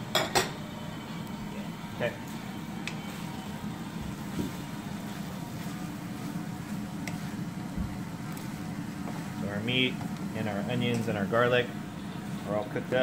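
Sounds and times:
vegetables stir-frying in a wok: 1.4s - 13.0s.

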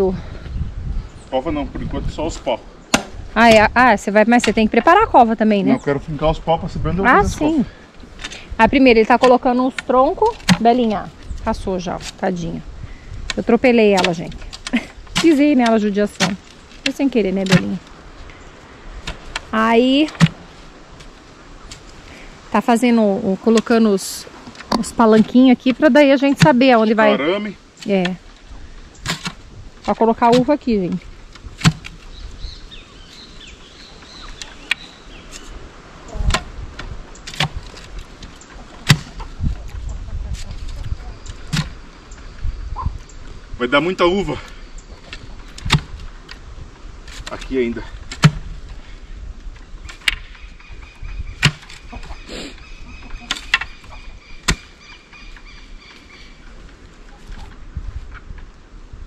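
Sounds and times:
chickens calling: 7.0s - 29.2s, 29.9s - 46.3s, 48.7s - 58.3s.

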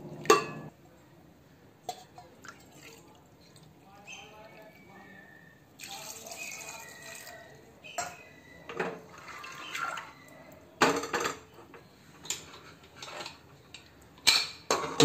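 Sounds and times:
steel utensils clinking: 0.2s - 0.7s
water pouring into a pot: 5.8s - 7.4s, 9.1s - 10.2s.

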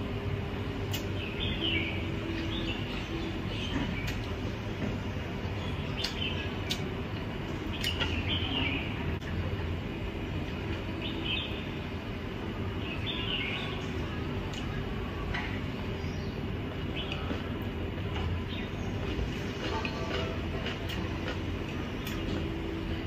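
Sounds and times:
steady low hum: 0.0s - 23.0s
chewing and crunchy bites: 19.0s - 22.5s.

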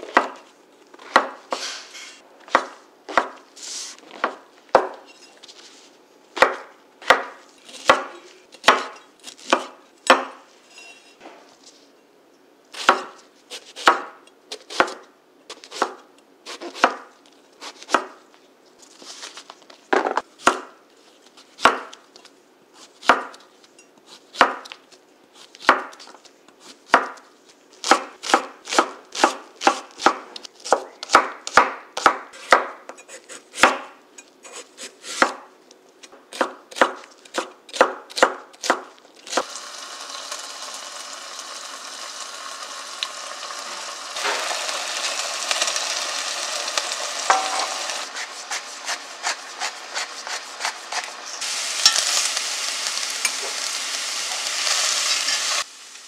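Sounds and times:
knife chopping on wooden board: 2.5s - 3.4s, 6.4s - 10.4s, 23.0s - 23.4s, 27.8s - 32.8s, 48.2s - 51.1s.

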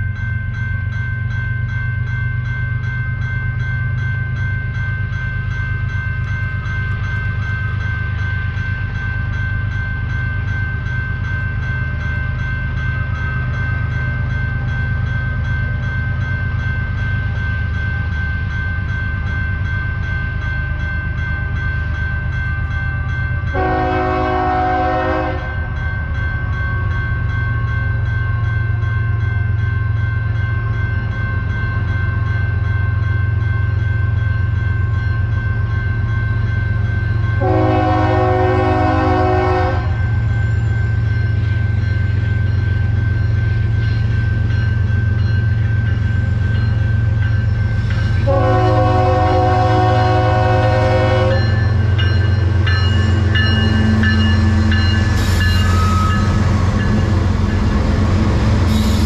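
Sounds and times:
freight train rumbling: 0.0s - 59.0s
railroad crossing bell ringing: 0.0s - 59.0s
locomotive horn blast: 23.5s - 25.6s, 37.4s - 40.0s, 48.2s - 51.6s.

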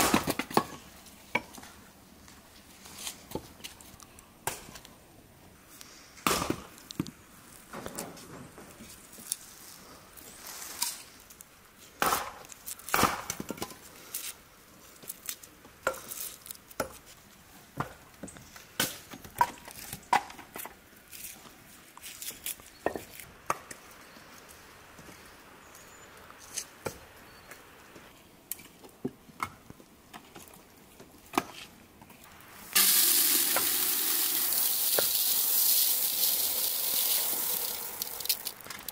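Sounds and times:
rice poured into metal bowl: 32.7s - 38.9s.

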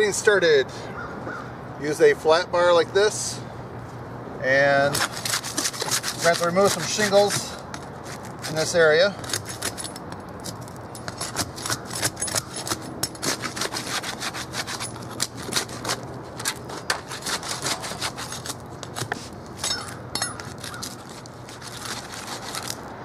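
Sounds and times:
metal bar scraping roof shingles: 4.9s - 9.9s, 11.1s - 22.8s.

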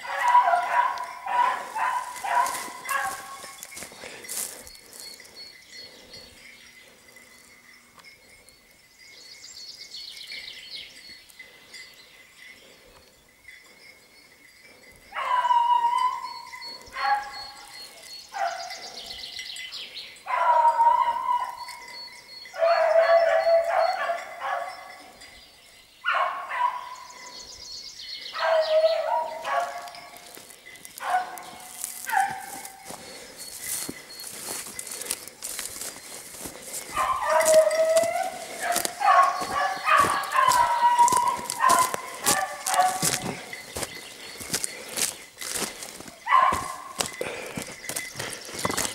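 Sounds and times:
dog baying: 0.0s - 3.6s, 15.1s - 17.7s, 20.3s - 24.9s, 28.4s - 30.3s, 31.0s - 33.3s, 34.4s - 45.0s, 45.8s - 47.5s
birdsong with falling trills: 0.7s - 48.9s.

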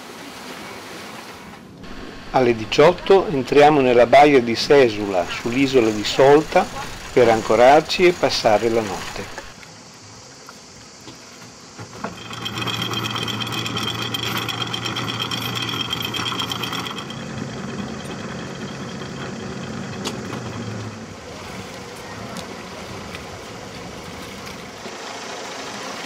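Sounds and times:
boat motor running: 1.8s - 9.6s, 11.8s - 26.0s
metallic rattle: 11.9s - 21.0s.

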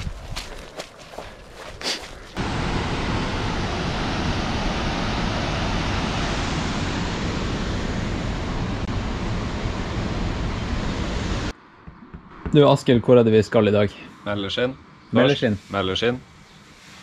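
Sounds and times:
runner's footfall: 0.0s - 2.4s.

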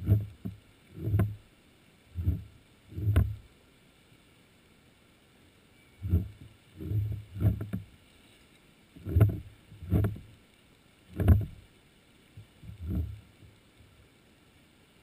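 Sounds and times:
dull low underwater knocks: 0.0s - 1.4s, 2.2s - 3.4s, 6.0s - 7.9s, 9.0s - 10.3s, 11.1s - 11.6s, 12.4s - 13.5s.

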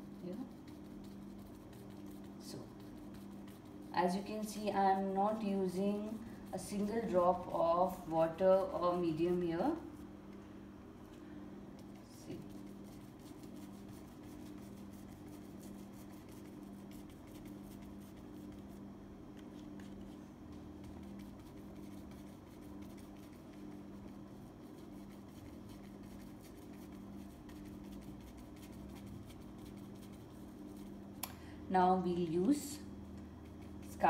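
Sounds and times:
bristle brush dabbing on canvas: 0.0s - 10.1s, 11.8s - 31.1s, 33.3s - 34.0s
low steady hum: 0.0s - 34.0s.

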